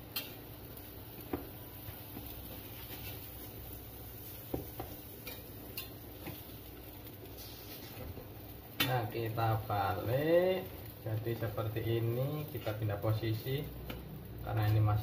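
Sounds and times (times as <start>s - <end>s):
metal spatula scraping a griddle: 2.6s - 3.5s, 5.2s - 6.5s, 7.3s - 8.1s.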